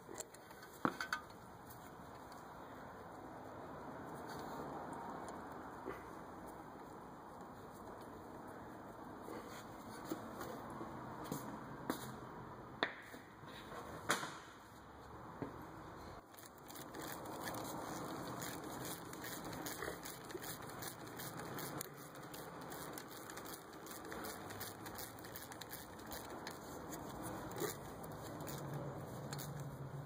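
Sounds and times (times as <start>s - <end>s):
light metal clicks and rubbing: 0.0s - 2.5s, 16.2s - 29.9s.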